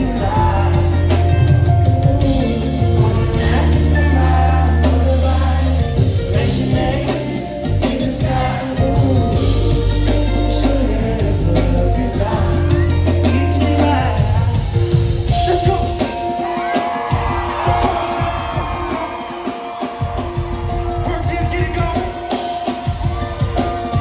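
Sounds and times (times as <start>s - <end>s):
heavy bass: 0.0s - 15.8s
man singing: 0.0s - 19.6s
drums: 0.0s - 24.0s
guitar: 0.0s - 24.0s.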